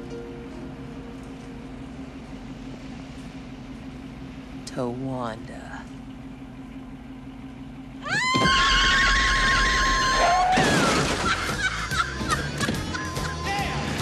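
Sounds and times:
car crash with breaking glass: 10.3 - 11.6
debris clattering: 10.5 - 11.9.

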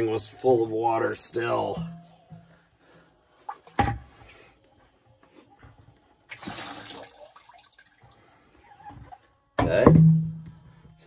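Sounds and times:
water rushing into a bucket: 6.3 - 8.1.

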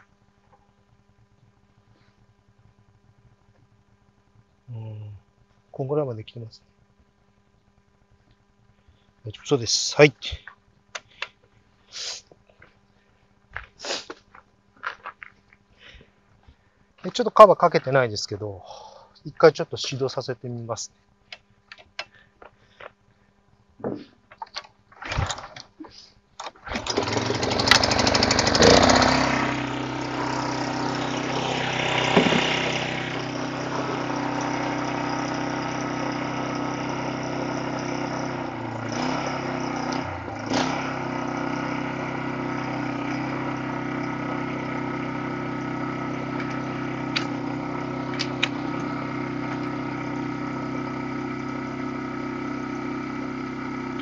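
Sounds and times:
small engine idling: 26.4 - 54.0
small engine knocking: 26.7 - 54.0.

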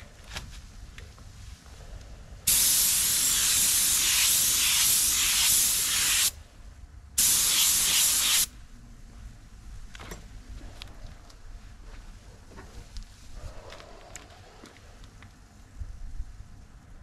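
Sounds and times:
paint spray gun hissing: 2.5 - 6.4, 7.2 - 8.5.

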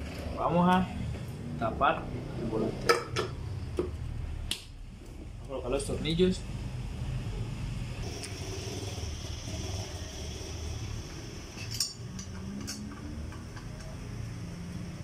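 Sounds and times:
steady low hum: 0.0 - 15.0
metallic clinks of bolts and tool: 11.6 - 14.0.

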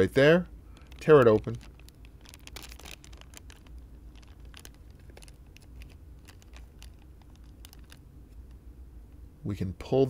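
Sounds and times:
low steady hum: 0.0 - 10.0
plastic pouch crinkling: 0.7 - 8.6.

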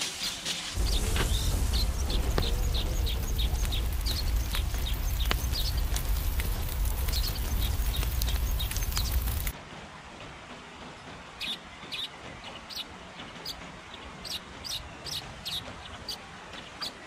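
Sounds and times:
campfire crackling and popping: 0.6 - 9.5
river water rushing: 0.7 - 10.0
low rumble: 0.8 - 9.5.

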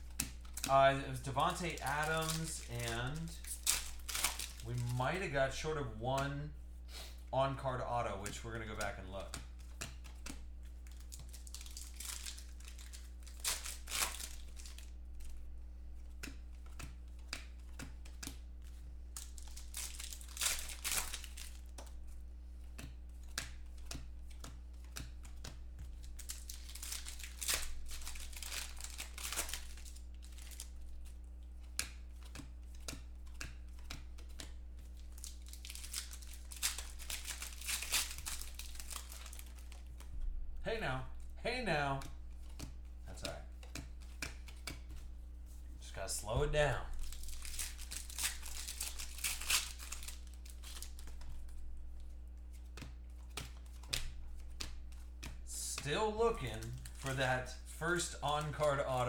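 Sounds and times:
foil wrappers crinkling and tearing: 0.0 - 5.4, 10.8 - 15.4, 19.1 - 22.0, 25.9 - 31.4, 34.2 - 40.0, 46.9 - 55.2, 56.1 - 59.0
low electrical hum: 0.0 - 59.0.

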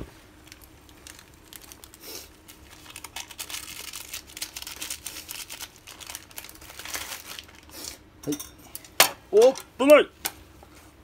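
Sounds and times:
plastic sachet crinkling: 0.4 - 8.0.

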